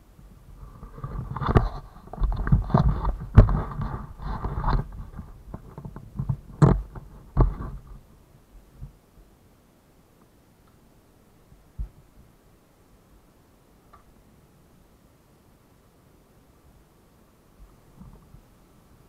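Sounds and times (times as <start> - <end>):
rustling and scraping handling noise: 0.5 - 8.1.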